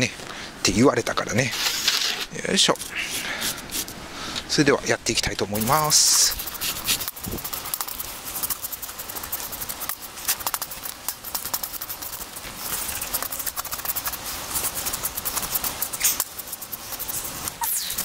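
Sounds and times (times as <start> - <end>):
knife scraping fish scales: 5.6 - 18.0.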